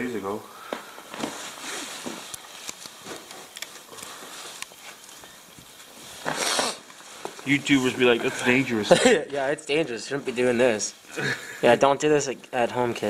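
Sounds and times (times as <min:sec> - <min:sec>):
twine rustling: 0:00.9 - 0:11.1.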